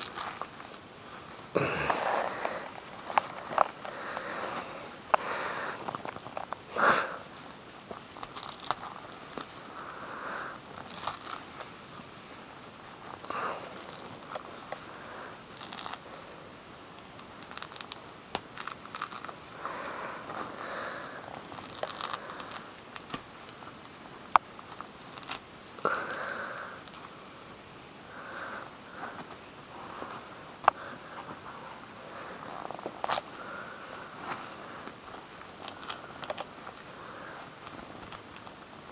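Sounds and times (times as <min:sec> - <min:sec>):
fruit rind tearing and crunching: 0:08.1 - 0:09.6, 0:10.7 - 0:11.5, 0:15.4 - 0:16.1, 0:17.1 - 0:19.4, 0:21.4 - 0:23.3.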